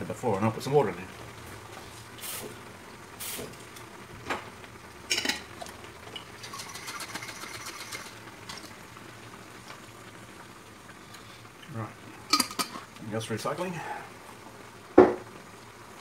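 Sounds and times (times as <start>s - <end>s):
water shaken in a plastic bottle: 6.4s - 8.1s.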